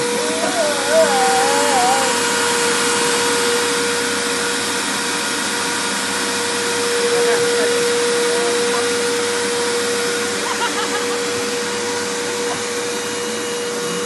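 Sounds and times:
vacuum cleaner running: 0:00.0 - 0:14.0.

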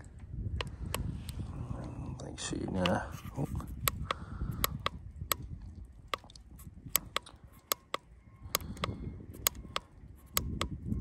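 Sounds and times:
battery tester button clicks: 0:06.9 - 0:10.8.

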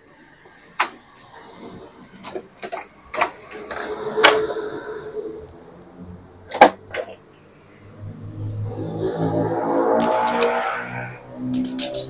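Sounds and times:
squeaky sliding scrape: 0:01.2 - 0:05.5
plastic and metal parts clicking: 0:02.2 - 0:03.7, 0:11.5 - 0:12.0.

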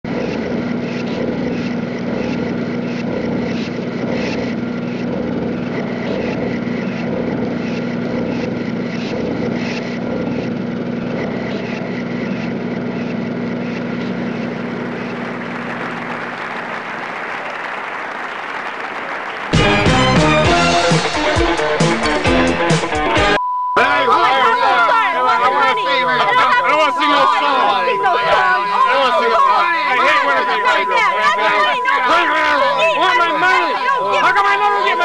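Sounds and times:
small engine running: 0:00.0 - 0:23.2.

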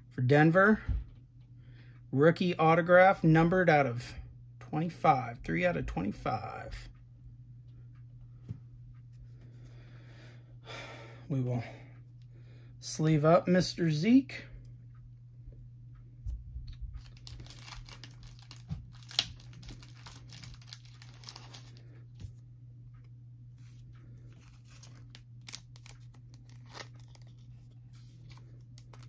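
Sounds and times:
steady low hum: 0:00.0 - 0:29.0
plastic sleeve crinkling: 0:16.7 - 0:22.1, 0:24.3 - 0:29.0.

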